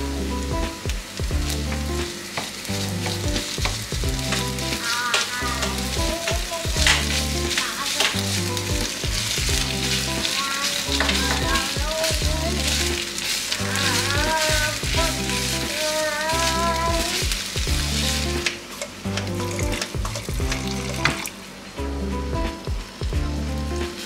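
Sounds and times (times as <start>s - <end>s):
background music with bassline: 0.0s - 4.8s, 5.4s - 7.5s, 8.2s - 10.3s, 10.9s - 13.0s, 13.6s - 15.7s, 16.3s - 18.5s, 19.1s - 21.2s, 21.8s - 24.0s
food sizzling in a frying pan: 0.0s - 24.0s
wooden spatula scraping pan: 3.0s - 18.5s.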